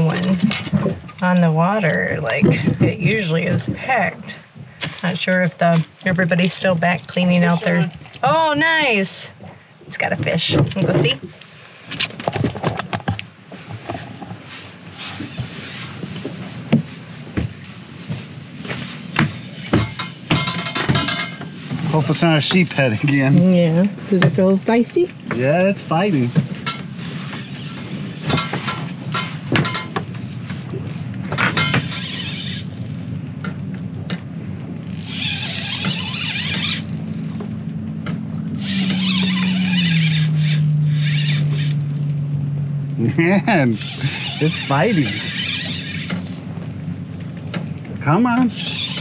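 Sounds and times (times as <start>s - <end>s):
knocks and thumps on boat: 0.0s - 8.8s, 15.2s - 32.6s
spinning reel winding: 14.7s - 25.0s, 31.7s - 34.1s, 34.7s - 49.0s.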